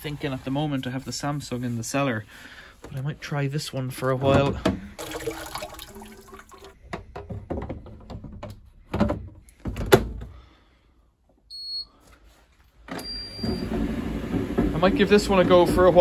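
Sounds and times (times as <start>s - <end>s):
water pouring into steel sink: 5.0s - 6.8s
tumble dryer running: 13.4s - 16.0s.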